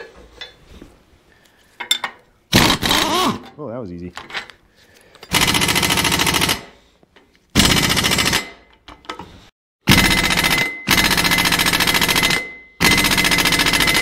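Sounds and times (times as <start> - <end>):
impact wrench hammering: 2.5 - 3.5, 7.6 - 9.1, 9.9 - 14.0.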